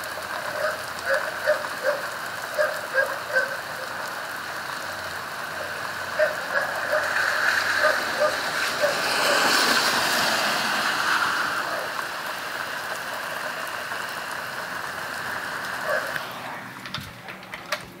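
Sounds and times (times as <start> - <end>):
steady rain falling: 0.0 - 18.0
dog barking: 0.5 - 3.9, 5.6 - 9.4, 15.8 - 16.2.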